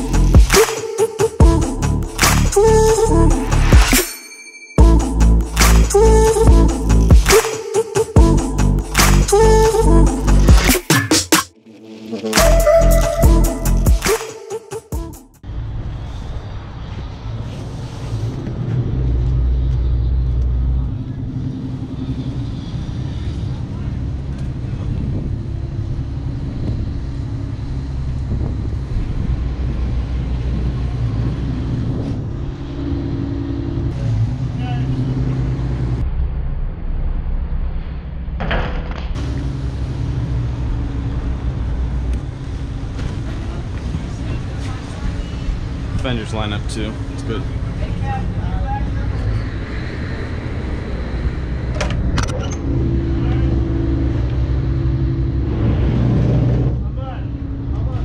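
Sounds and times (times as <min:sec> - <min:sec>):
diesel engines humming: 0:00.0 - 0:00.7, 0:01.3 - 0:04.0, 0:04.8 - 0:07.3, 0:08.2 - 0:14.1, 0:15.0 - 0:36.0, 0:39.2 - 0:58.0
wind buffeting microphone: 0:23.3 - 0:33.1.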